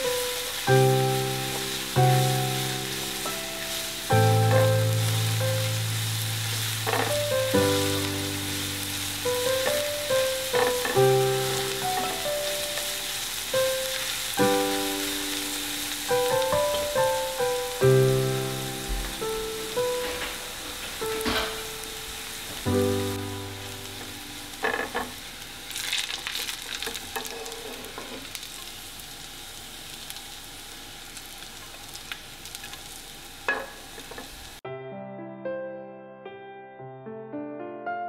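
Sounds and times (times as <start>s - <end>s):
soft music of slow chords: 0.0s - 25.4s
garlic sizzling in oil: 0.0s - 34.6s.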